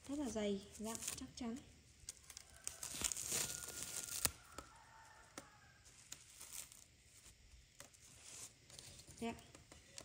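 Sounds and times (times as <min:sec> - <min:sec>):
plastic wrap crinkling: 0:00.0 - 0:10.0.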